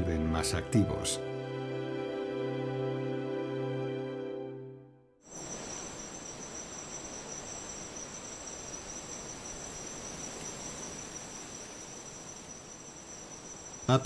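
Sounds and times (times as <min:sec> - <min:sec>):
background hiss: 0:05.2 - 0:14.0
insects trilling: 0:05.2 - 0:14.0.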